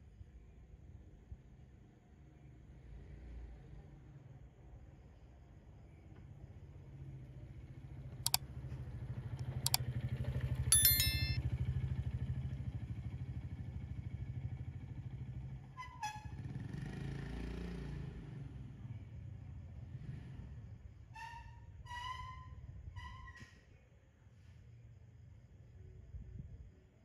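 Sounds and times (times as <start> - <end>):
brief high ding: 10.7 - 11.4.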